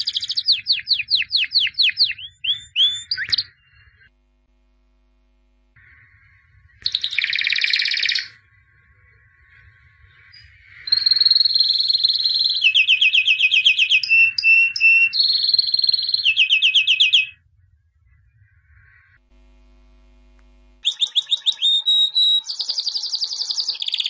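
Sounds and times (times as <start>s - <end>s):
canary singing: 0.0s - 4.1s, 5.8s - 17.4s, 20.8s - 24.0s.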